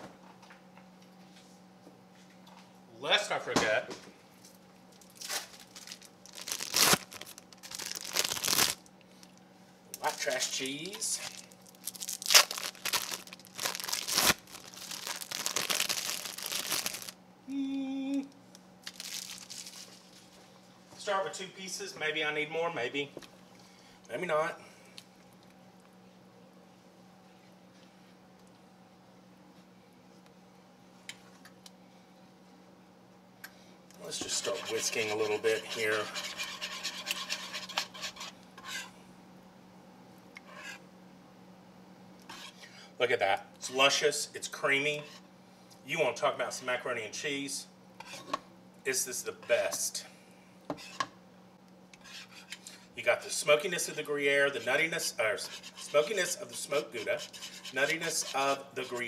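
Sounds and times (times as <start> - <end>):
plastic packaging crinkling: 4.9 - 9.4, 10.0 - 17.2, 18.8 - 20.4
whisk scraping pan: 34.0 - 38.9, 52.0 - 59.0.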